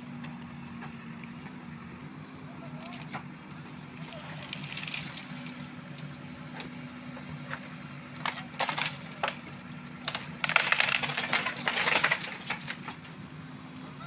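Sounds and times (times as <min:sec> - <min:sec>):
backhoe engine running: 0:00.0 - 0:14.0
bamboo cracking and splintering: 0:04.1 - 0:06.0, 0:08.2 - 0:13.2.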